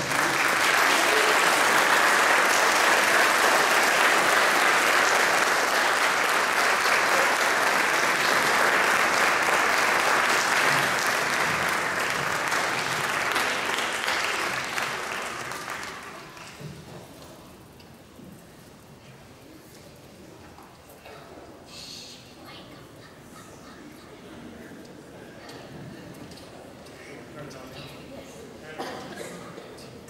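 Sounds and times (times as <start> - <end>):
audience applauding: 0.0 - 16.9.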